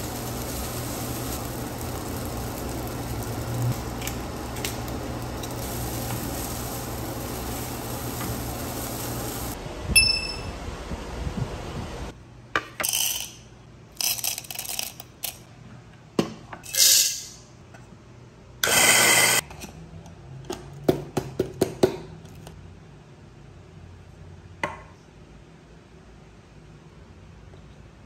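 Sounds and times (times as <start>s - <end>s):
electric coffee grinder running: 0.0s - 9.6s.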